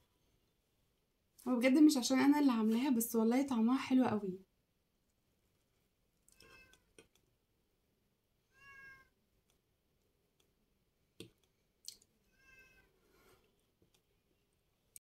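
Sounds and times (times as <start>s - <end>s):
cat meowing faintly: 6.3s - 6.9s, 8.5s - 9.2s, 12.3s - 13.0s.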